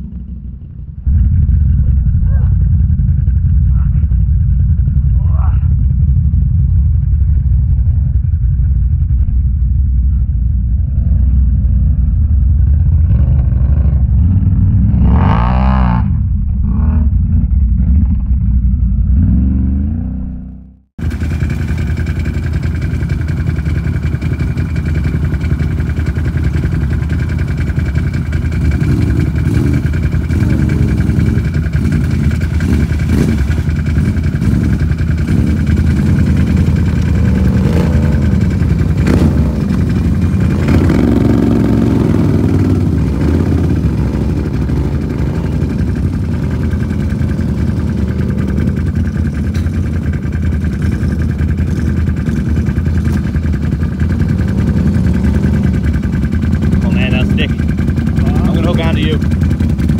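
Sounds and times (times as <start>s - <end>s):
atv engine running: 0.0s - 59.9s
engine idling: 0.0s - 59.9s.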